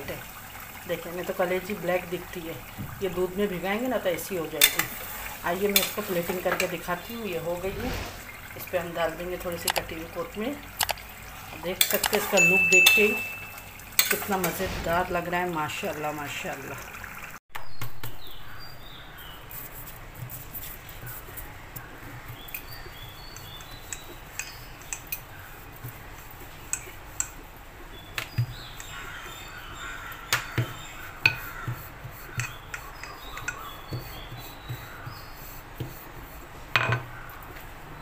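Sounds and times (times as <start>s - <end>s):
patting dough: 19.4s - 37.6s
rolling pin on dough: 30.3s - 37.0s.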